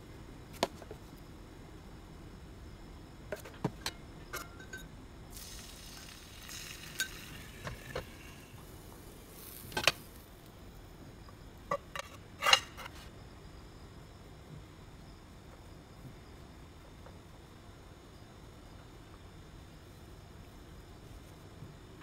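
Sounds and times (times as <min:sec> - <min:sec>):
batter sizzling: 0:05.3 - 0:10.8.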